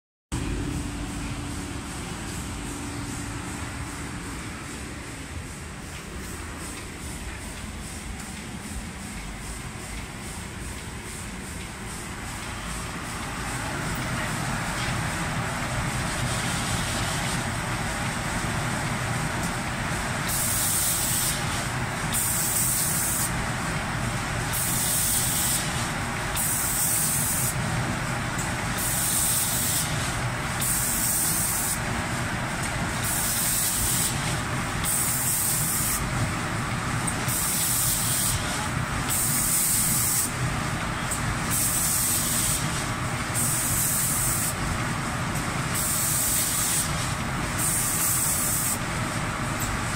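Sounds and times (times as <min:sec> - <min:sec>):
machine noise rush: 0:00.3 - 0:40.4
spray guns hissing: 0:20.2 - 0:23.4, 0:24.5 - 0:27.6, 0:28.8 - 0:31.8, 0:33.0 - 0:36.1, 0:37.3 - 0:40.4, 0:41.5 - 0:42.8, 0:43.4 - 0:44.6, 0:45.8 - 0:48.9.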